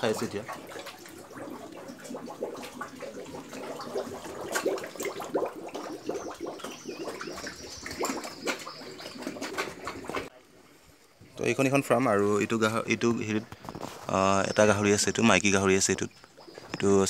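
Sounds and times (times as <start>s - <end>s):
pigs slurping feed: 0.0s - 10.3s.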